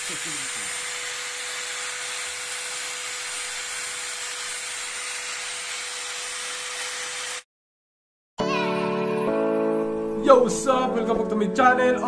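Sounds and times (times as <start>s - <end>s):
angle grinder running: 0.0s - 7.5s.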